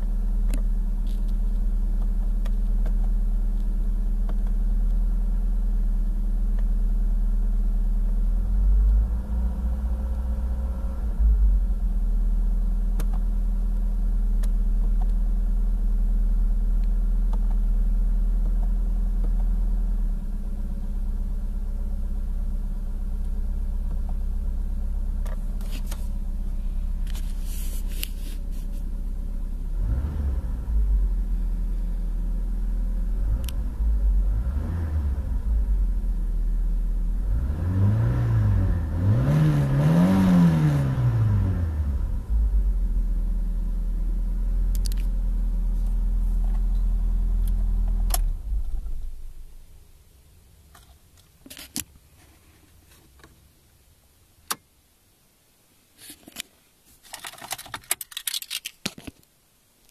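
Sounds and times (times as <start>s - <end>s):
car engine idling: 0.0s - 37.6s, 41.2s - 51.4s.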